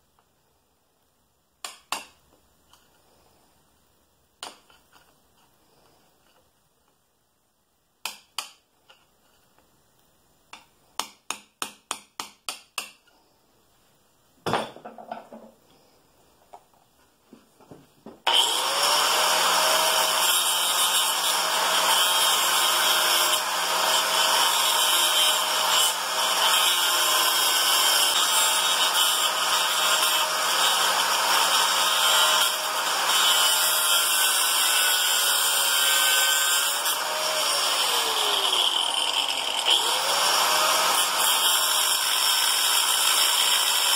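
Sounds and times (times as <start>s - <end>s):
angle grinder cutting metal: 18.3s - 43.9s.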